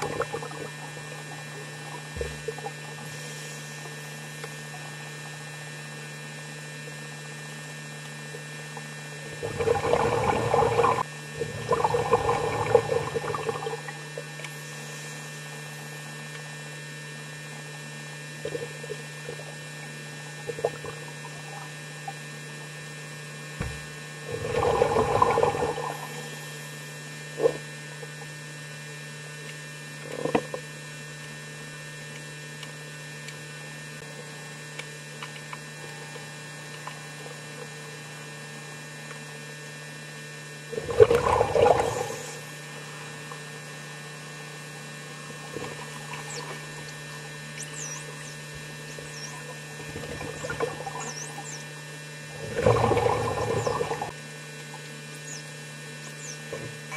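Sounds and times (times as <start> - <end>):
steady electrical hum: 0.0 - 56.9
surges of water noise: 9.3 - 14.0, 24.3 - 26.2, 40.8 - 42.4, 52.4 - 54.1.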